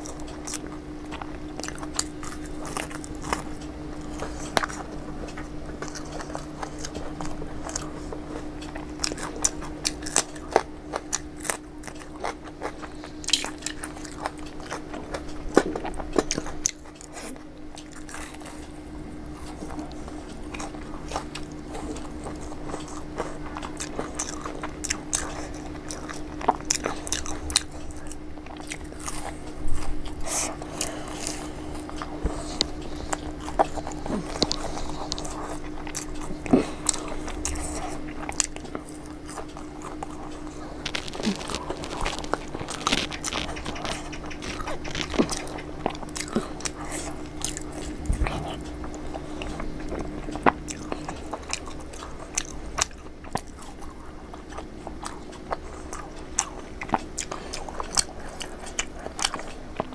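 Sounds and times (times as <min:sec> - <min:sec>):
steady low hum: 0:00.0 - 0:59.9
wet chewing: 0:00.0 - 0:59.9
crisp shells crunching: 0:40.0 - 0:48.0.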